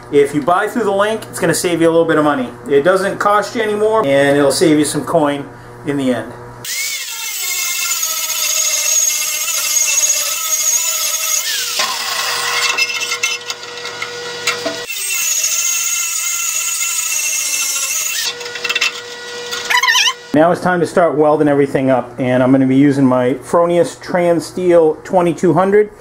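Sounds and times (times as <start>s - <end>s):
angle grinder grinding metal: 6.6s - 20.4s.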